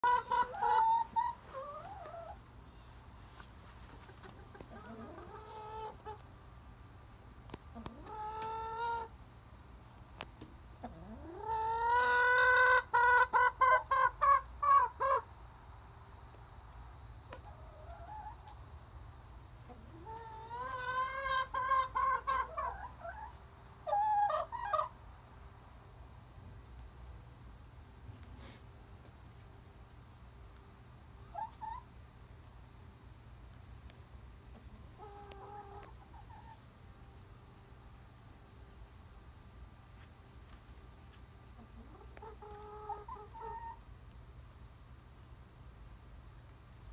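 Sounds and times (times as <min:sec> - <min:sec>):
hens clucking: 0:00.0 - 0:06.4, 0:07.5 - 0:09.2, 0:09.9 - 0:15.4, 0:17.2 - 0:18.9, 0:19.6 - 0:25.1, 0:31.0 - 0:32.0, 0:34.4 - 0:36.9, 0:41.4 - 0:43.9.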